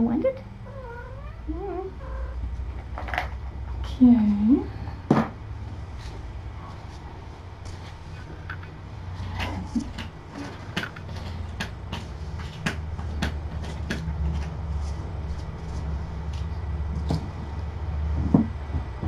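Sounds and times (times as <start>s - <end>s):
steady low hum: 0.0s - 19.0s
objects clicking and knocking: 9.3s - 14.6s.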